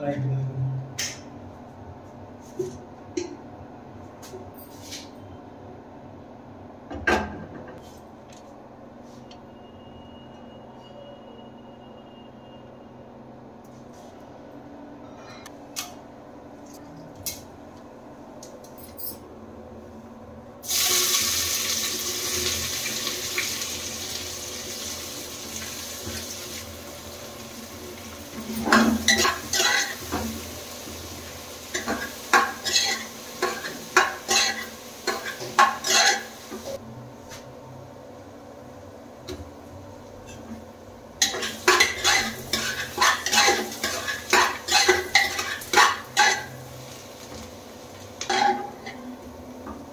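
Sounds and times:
onions sizzling in hot oil: 20.6s - 36.8s, 41.2s - 49.0s
metal spoon scraping a pot: 32.6s - 36.3s, 41.2s - 46.6s.

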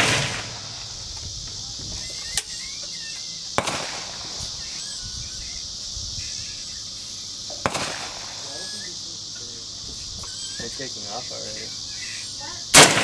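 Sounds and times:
rifle shot with echo: 0.0s - 0.9s, 3.6s - 4.4s, 7.6s - 8.5s, 12.7s - 13.0s
high insect buzz: 0.0s - 13.0s.

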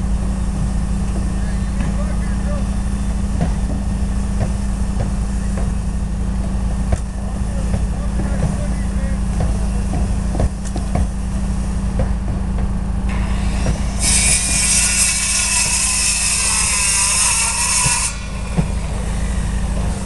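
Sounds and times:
low rumble: 0.0s - 14.7s
power saw cutting wood: 13.1s - 20.0s.

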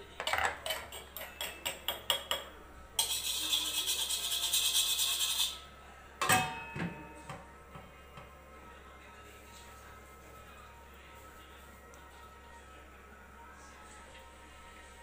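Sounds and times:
metal spoon clinking on stone mortar: 0.2s - 5.2s
metal pot lid clank: 6.2s - 7.0s.

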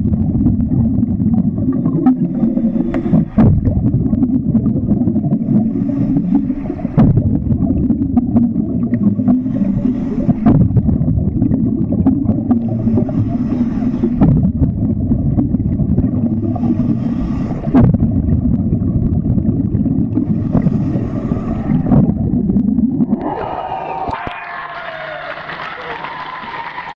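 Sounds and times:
underwater low rumble: 0.0s - 26.9s
hissing swish underwater: 0.6s - 24.1s.

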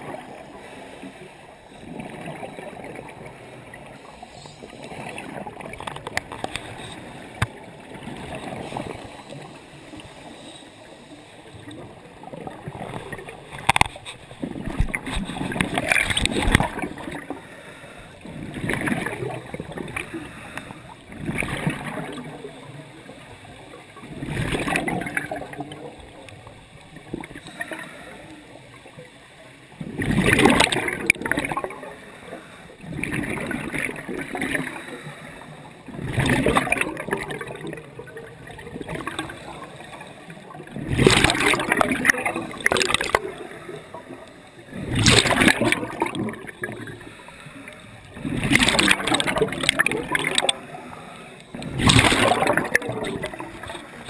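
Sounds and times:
regulator exhaust bubbles underwater: 1.6s - 10.4s, 11.4s - 29.1s, 29.7s - 47.4s, 48.0s - 54.0s.

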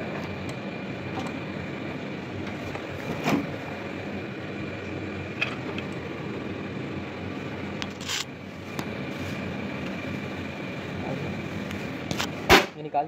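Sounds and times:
steady mechanical hum: 0.0s - 13.0s.

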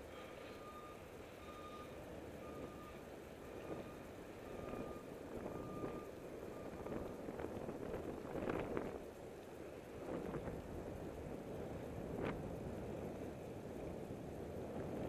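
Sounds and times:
wind and road noise: 0.0s - 15.0s
reversing alarm beeping: 0.1s - 7.2s.

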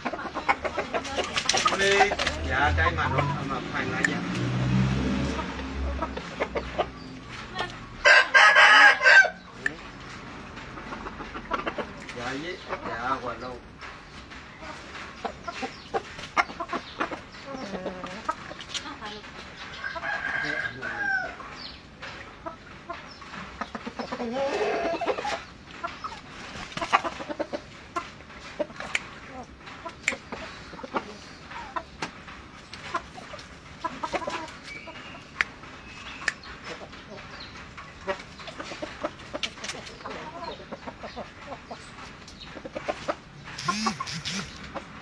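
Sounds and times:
soft clucks: 0.0s - 4.3s, 5.3s - 8.0s, 9.4s - 20.6s, 21.2s - 45.0s
rooster crowing: 8.0s - 9.4s, 19.9s - 21.4s
rooster wings flapping: 43.6s - 44.6s.

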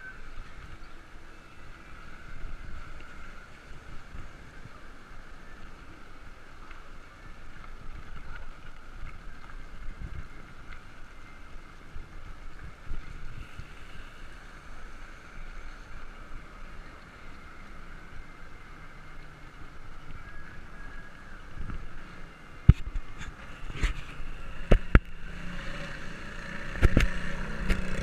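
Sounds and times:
tyres rolling on wet pavement: 1.4s - 28.0s
wind rushing over microphone: 21.4s - 28.0s.

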